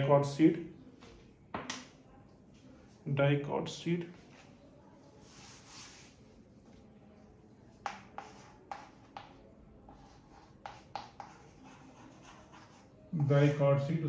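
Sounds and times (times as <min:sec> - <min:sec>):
chalk tapping and scratching: 0:05.2 - 0:06.2, 0:07.7 - 0:13.4.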